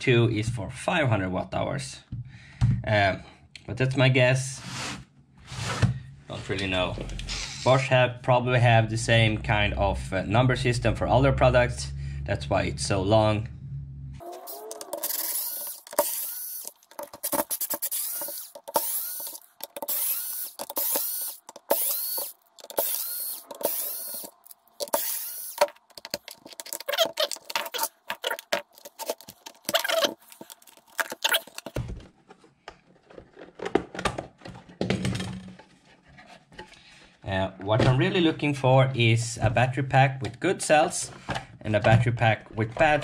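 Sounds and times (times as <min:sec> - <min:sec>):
rasping bursts with squeak: 0:14.2 - 0:31.7
clicks and scrapes: 0:14.2 - 0:34.8.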